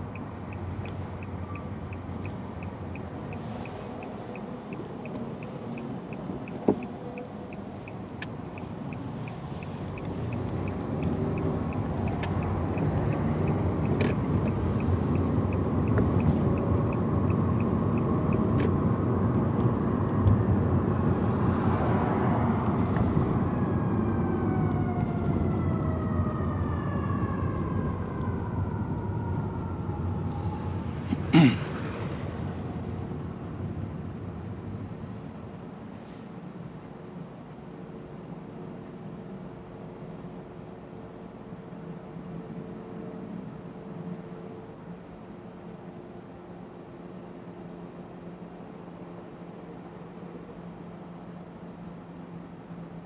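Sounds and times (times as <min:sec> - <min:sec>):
light regular ticking: 0:00.0 - 0:18.8
car road and engine noise: 0:00.0 - 0:53.0.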